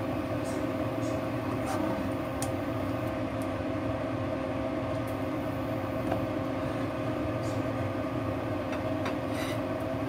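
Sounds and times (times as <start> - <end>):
induction cooktop humming: 0.0 - 10.0
spatula scraping a wok: 9.2 - 9.7.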